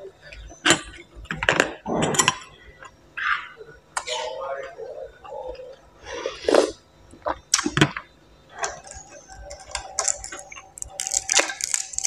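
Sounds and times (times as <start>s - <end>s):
small crackles: 5.4s - 12.0s.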